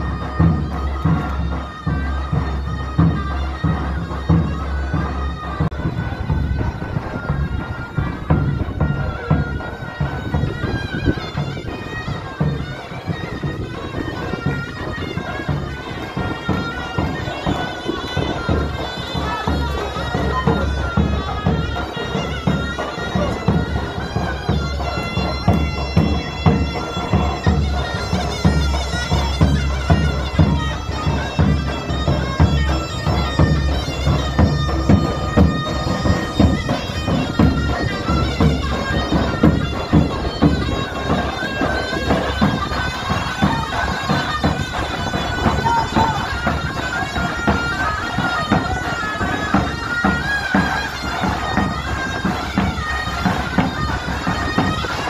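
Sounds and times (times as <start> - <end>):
pounding drum beat: 0.0 - 55.0
shrill reed pipe melody: 0.0 - 55.0.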